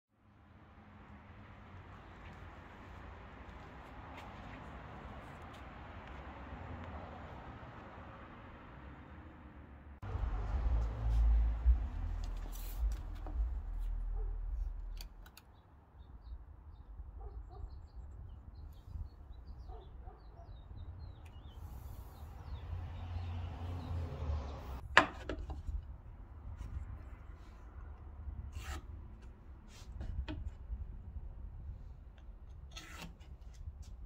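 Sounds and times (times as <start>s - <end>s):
low rumble: 10.0s - 15.0s
tape measure and square handling: 12.0s - 15.4s, 32.5s - 34.0s.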